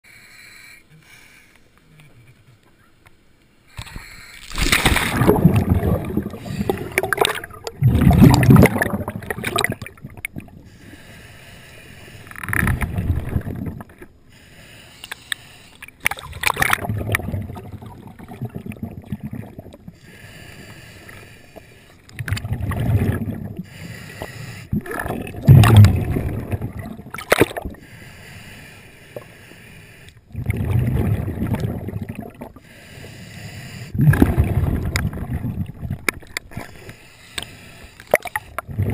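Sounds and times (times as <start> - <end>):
diver exhaling bubble bursts: 4.4 - 11.0, 12.4 - 14.1, 16.0 - 20.0, 22.2 - 23.7, 24.7 - 27.8, 30.3 - 32.6, 33.9 - 36.8, 38.1 - 38.9
underwater churning bubbles: 4.4 - 11.2, 12.2 - 14.2, 15.8 - 27.9, 30.2 - 32.8, 33.6 - 38.9.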